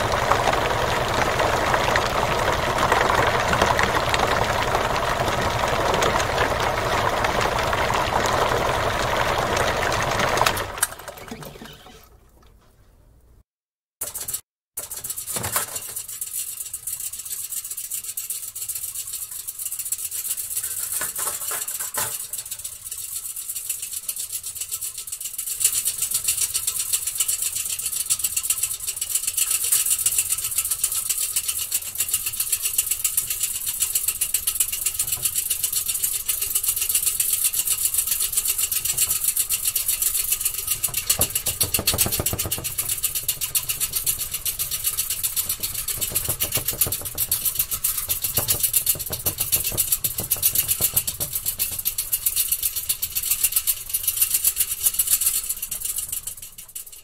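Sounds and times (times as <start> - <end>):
electric paint mixer rattling: 0.0 - 12.1, 25.8 - 57.0.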